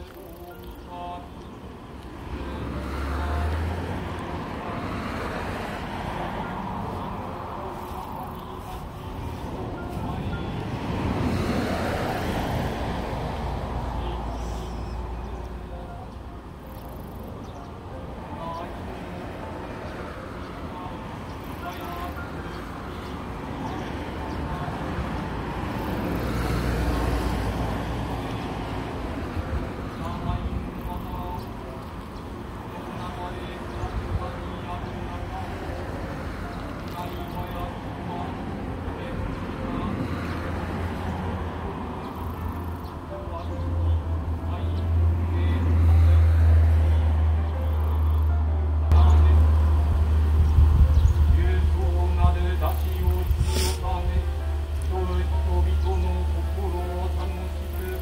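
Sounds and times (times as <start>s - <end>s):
road vehicle passing: 0.0s - 58.0s.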